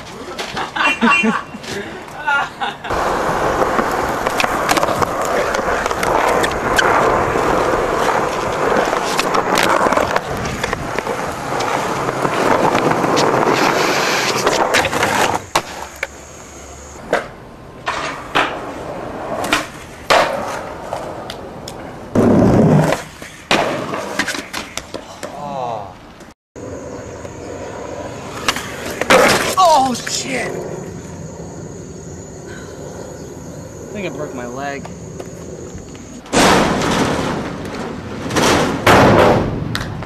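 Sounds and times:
skateboard wheels rolling on concrete: 0:00.0 - 0:40.0
skateboard clacks and knocks: 0:17.1 - 0:25.4.

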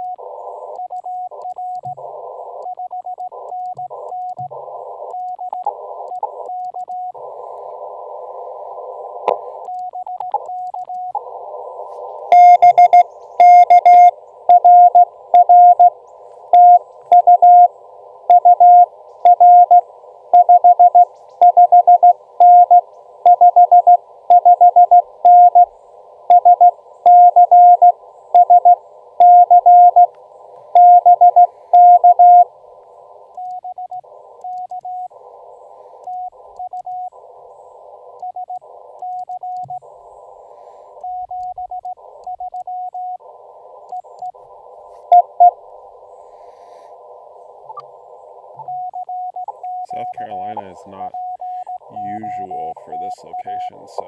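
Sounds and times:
radio hiss: 0:00.0 - 0:54.0
morse code tones: 0:09.3 - 0:17.7, 0:18.3 - 0:25.7, 0:26.3 - 0:30.1, 0:30.7 - 0:32.5, 0:44.9 - 0:45.6, 0:48.6 - 0:54.0.

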